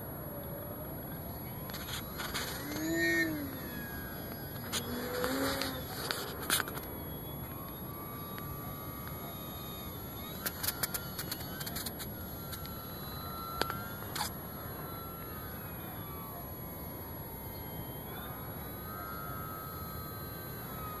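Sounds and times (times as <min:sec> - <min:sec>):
model airplane motor whine: 0:00.0 - 0:21.0
sharp clicks: 0:10.2 - 0:12.7.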